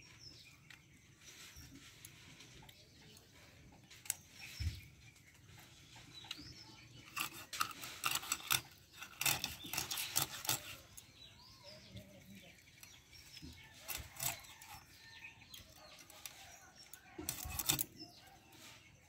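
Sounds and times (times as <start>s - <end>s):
faint bird chirps: 0.0s - 7.6s, 8.4s - 19.0s
knife scraping fish scales: 6.9s - 11.2s, 12.8s - 18.8s
blade clicks and knock: 7.1s - 11.1s, 12.8s - 14.8s, 16.0s - 18.0s.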